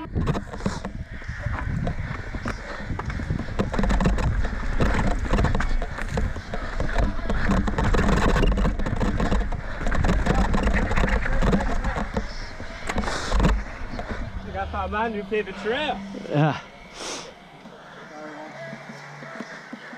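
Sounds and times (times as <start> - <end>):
wind rumble on microphone: 0.0 - 15.6
bike tyres clattering over rock: 0.0 - 15.9
bike rattling: 0.0 - 16.8.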